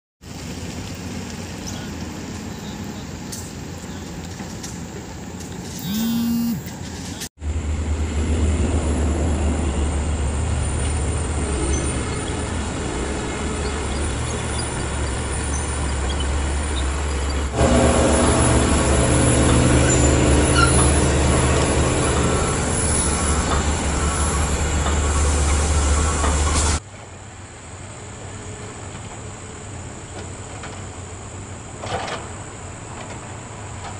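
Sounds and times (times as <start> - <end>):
deep engine hum: 5.8 - 6.7
bulldozer engine drone: 5.8 - 6.8, 7.4 - 26.8.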